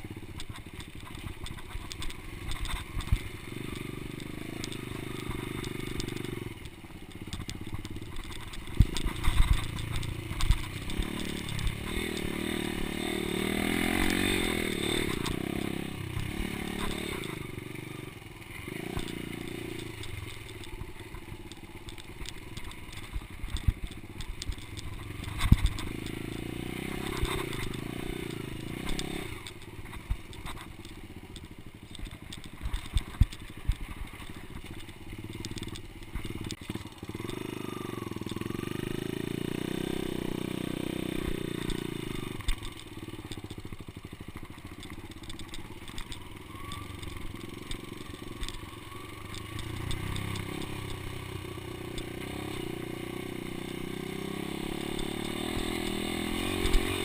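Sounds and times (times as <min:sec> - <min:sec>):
bike knocks and rattles: 0:00.0 - 0:13.2, 0:18.7 - 0:38.6
dirt bike engine running: 0:00.0 - 0:57.0.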